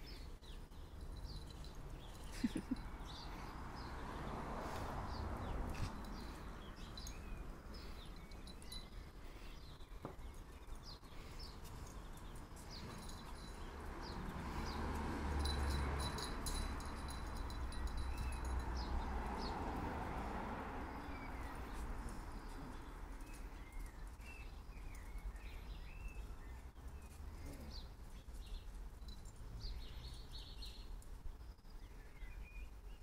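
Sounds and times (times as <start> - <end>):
birds chirping: 0.0 - 33.0
dogs scuffling on paving stones: 4.2 - 18.6, 21.1 - 31.2.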